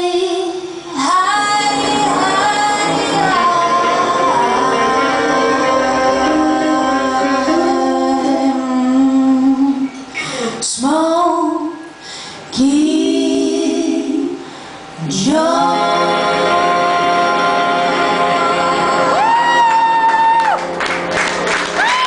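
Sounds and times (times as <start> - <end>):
women singing in harmony: 0.0 - 10.0, 12.5 - 20.0.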